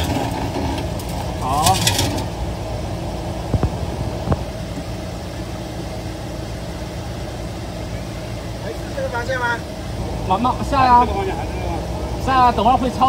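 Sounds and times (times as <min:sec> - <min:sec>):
suv engine at low revs: 0:00.0 - 0:13.0.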